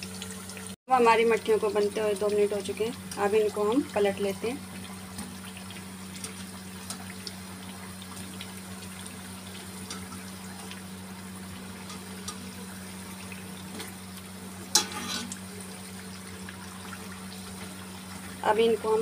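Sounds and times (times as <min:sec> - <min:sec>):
deep-frying sizzle with crackles: 0:00.0 - 0:19.0
metallic knock and scrape: 0:14.8 - 0:15.3.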